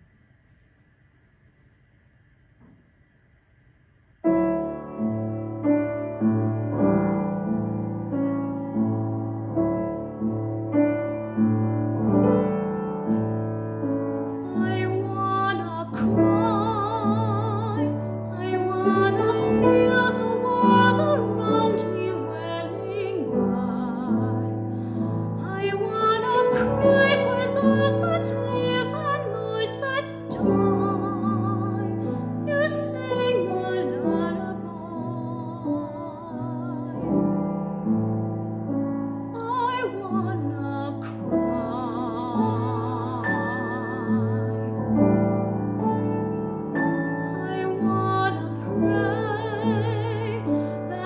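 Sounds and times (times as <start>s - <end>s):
piano accompaniment: 4.2s - 51.0s
woman singing with vibrato: 14.4s - 37.3s, 39.4s - 45.2s, 47.2s - 51.0s.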